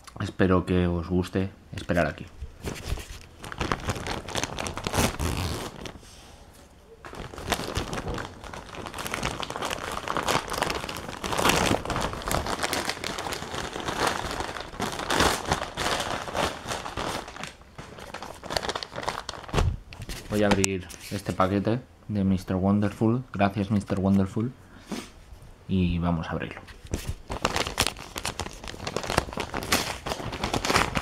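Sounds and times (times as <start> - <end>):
package wrapping rustling and crinkling: 2.4 - 21.5, 26.7 - 31.0.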